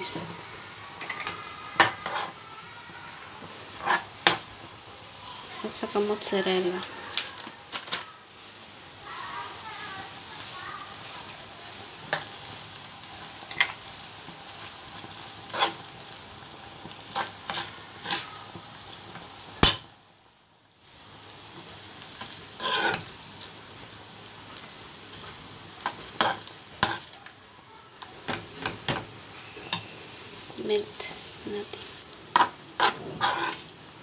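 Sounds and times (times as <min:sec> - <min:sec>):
sauce sizzling: 0:00.0 - 0:34.0
metal spoon scraping a pan: 0:01.0 - 0:02.4, 0:03.8 - 0:04.4, 0:15.0 - 0:16.0, 0:17.1 - 0:18.3, 0:22.2 - 0:23.1, 0:25.1 - 0:27.3, 0:32.2 - 0:33.7.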